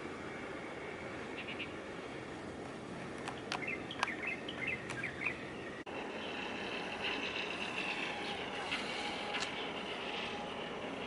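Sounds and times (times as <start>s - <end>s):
faint high whine: 0.0s - 11.0s
outdoor background noise: 0.0s - 11.0s
sharp clicks: 3.2s - 4.2s
small birds chirping: 3.2s - 5.8s.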